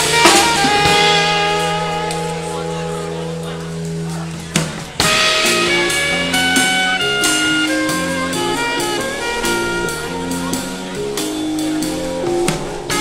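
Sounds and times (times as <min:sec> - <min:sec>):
drum kit beat: 0:00.0 - 0:13.0
saxophone: 0:00.0 - 0:13.0.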